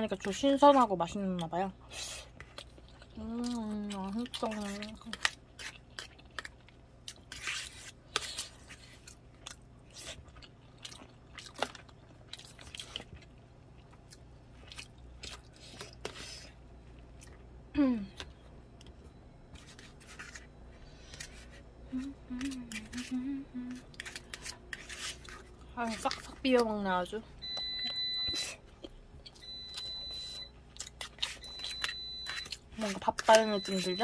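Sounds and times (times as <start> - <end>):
chewing: 0.2 - 17.5, 18.1 - 26.8, 27.5 - 34.0
person humming mm: 17.7 - 18.2, 21.9 - 23.9.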